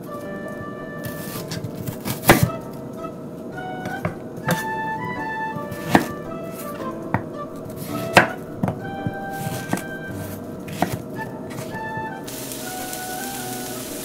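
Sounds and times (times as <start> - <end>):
knife chopping on wooden board: 1.1 - 2.5, 5.8 - 9.9, 10.7 - 11.8
onions sizzling in frying pan: 12.3 - 14.0.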